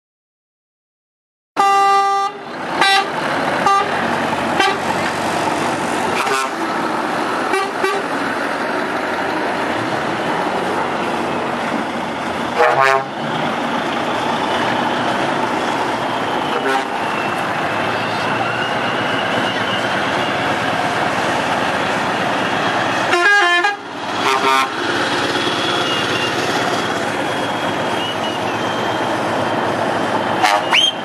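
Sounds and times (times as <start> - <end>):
truck horns: 1.6 - 8.9, 12.3 - 20.9, 22.4 - 29.7, 30.3 - 31.0
truck diesel engines running: 1.6 - 31.0.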